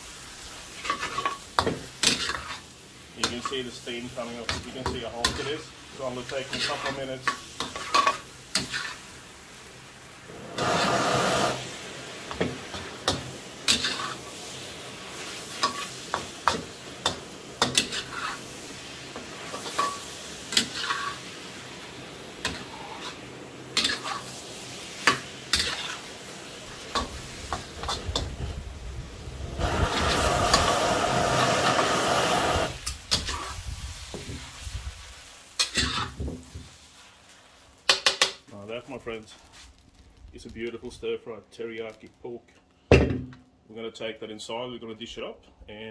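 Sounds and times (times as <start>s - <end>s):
food sizzling in a wok: 0.0s - 42.2s
metal spatula scraping wok: 0.6s - 9.1s, 10.4s - 21.8s, 22.4s - 28.4s, 29.6s - 34.7s, 35.6s - 37.1s.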